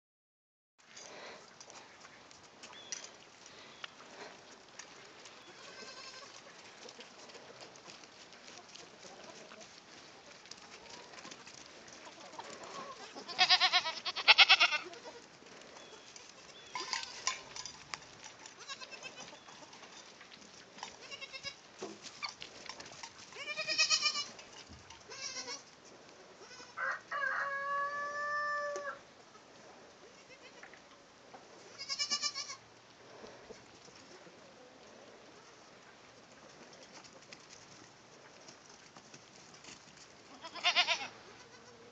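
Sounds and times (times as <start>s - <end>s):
goats bleating: 5.5s - 6.4s, 12.4s - 15.2s, 18.6s - 19.4s, 21.0s - 21.6s, 23.4s - 24.3s, 25.1s - 25.6s, 31.8s - 32.6s, 40.3s - 41.9s.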